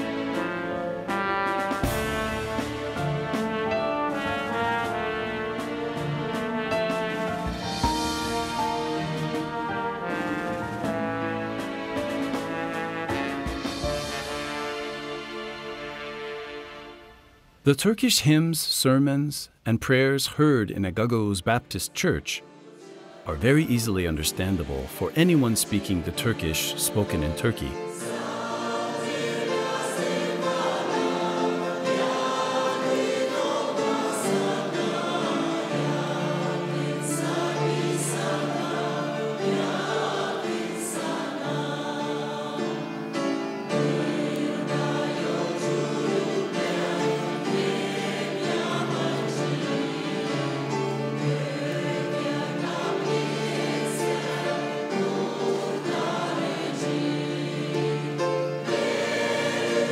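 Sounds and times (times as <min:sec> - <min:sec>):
choir singing a hymn: 0:00.0 - 0:16.9, 0:22.4 - 0:59.9.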